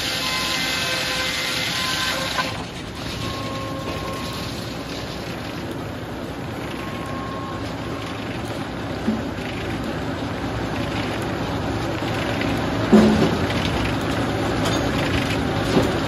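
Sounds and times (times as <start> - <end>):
saw blade whirring: 0.0 - 2.6
saw ripping through wood: 0.0 - 3.3.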